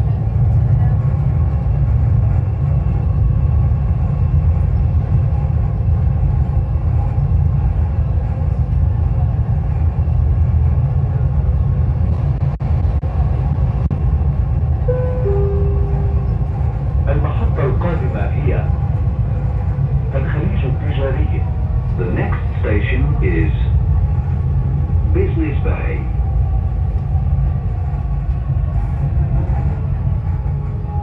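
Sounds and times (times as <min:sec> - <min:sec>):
train running rumble: 0:00.0 - 0:31.0
two-note chime: 0:14.9 - 0:16.5.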